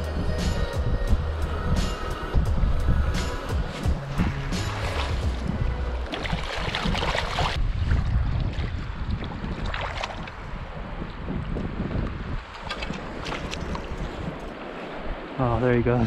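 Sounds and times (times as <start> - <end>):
wind buffeting microphone: 0.0 - 16.0
shallow river water trickling: 1.2 - 16.0.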